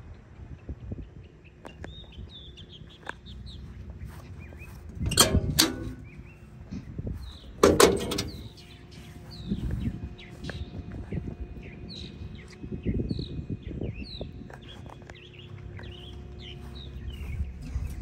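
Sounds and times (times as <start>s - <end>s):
birds chirping: 0.9s - 18.0s
metal door clanking: 5.0s - 6.2s, 7.6s - 8.6s.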